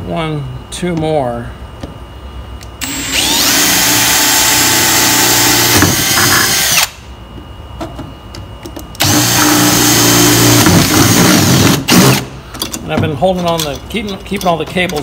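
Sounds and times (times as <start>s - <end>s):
cordless drill boring: 2.8s - 6.9s, 9.0s - 12.2s.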